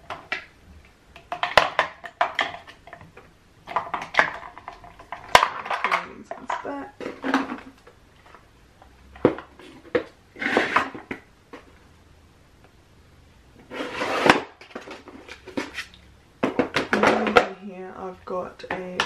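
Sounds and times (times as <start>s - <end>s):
plastic cases clacking together: 1.2s - 8.4s, 16.4s - 17.6s
scraping in drawer: 10.4s - 11.1s, 13.6s - 14.5s.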